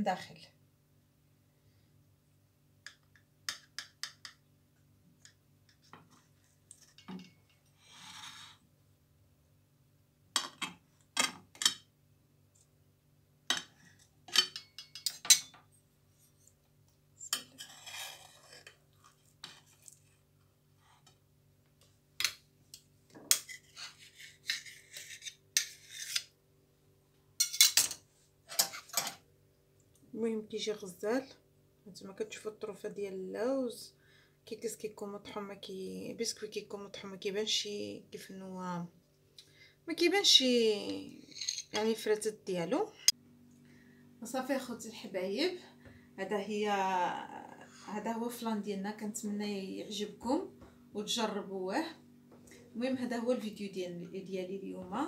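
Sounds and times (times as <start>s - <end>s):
knife clinking and scraping on plate: 14.3s - 15.6s, 27.4s - 29.2s, 41.2s - 41.9s.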